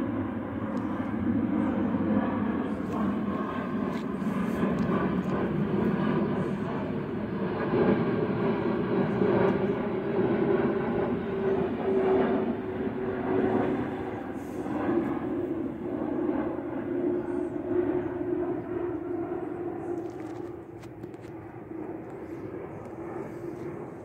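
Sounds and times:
jet airliner flying over: 0:00.0 - 0:24.0.

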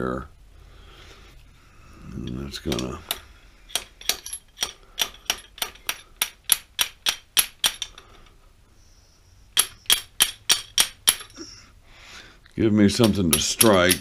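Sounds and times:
hammer tapping metal: 0:02.7 - 0:08.0, 0:09.5 - 0:11.3, 0:12.9 - 0:14.0.

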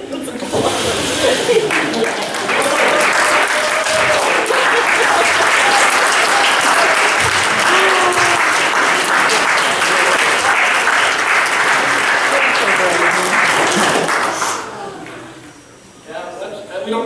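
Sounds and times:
voices calling out: 0:00.2 - 0:10.9
congregation applauding: 0:00.4 - 0:15.6.

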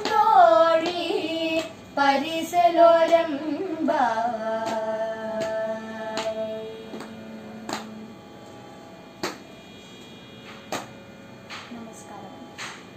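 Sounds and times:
hands clapping: 0:01.6 - 0:01.8, 0:04.6 - 0:08.0, 0:09.2 - 0:09.4, 0:10.6 - 0:10.9.

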